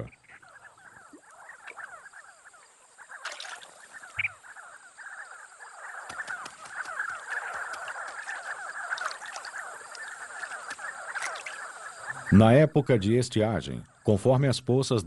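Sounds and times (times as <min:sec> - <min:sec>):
flock of birds chirping: 0:00.0 - 0:15.0.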